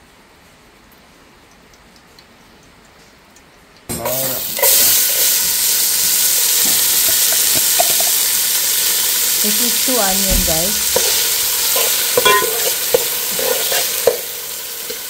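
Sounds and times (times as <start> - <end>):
onions sizzling in hot oil: 3.9 - 15.0.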